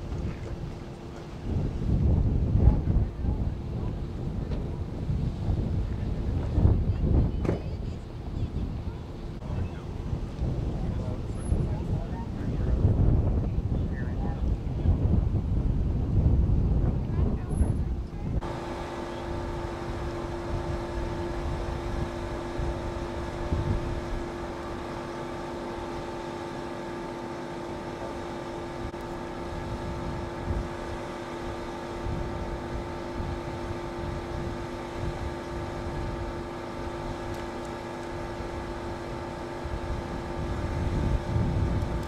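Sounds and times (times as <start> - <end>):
vehicle engine idling: 17.4 - 42.0.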